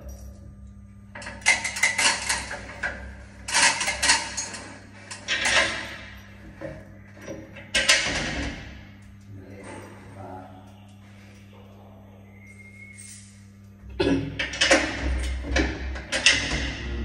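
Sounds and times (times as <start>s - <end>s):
metallic clattering and knocking: 14.3s - 17.0s.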